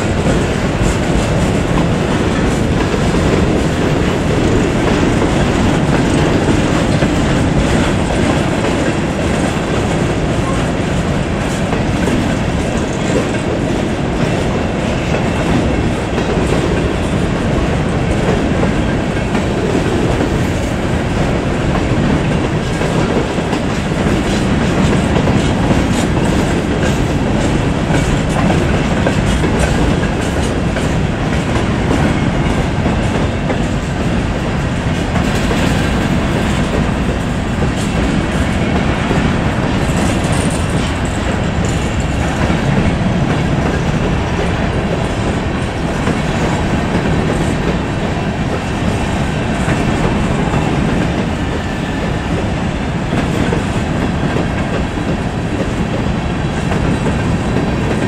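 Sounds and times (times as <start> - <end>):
steel wheels on rail: 0.0 - 58.0
wheels clicking over rail joints: 0.0 - 58.0.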